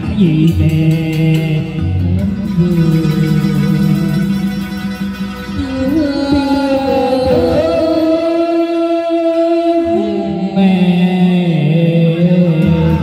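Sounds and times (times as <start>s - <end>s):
instrumental backing music: 0.0s - 13.0s
woman and man singing duet: 5.6s - 13.0s.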